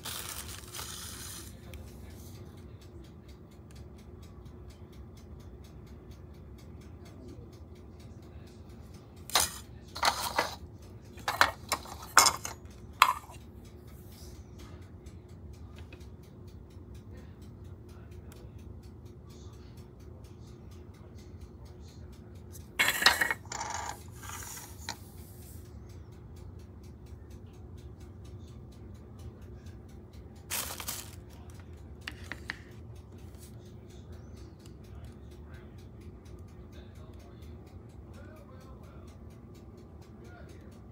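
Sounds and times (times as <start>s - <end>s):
plastic parts clattering on countertop: 9.3s - 10.6s, 11.2s - 13.4s, 22.8s - 25.0s, 30.5s - 31.2s.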